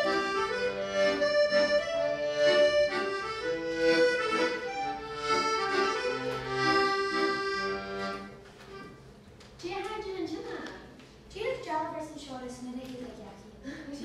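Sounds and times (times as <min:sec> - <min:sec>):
accordion playing held notes: 0:00.0 - 0:09.0.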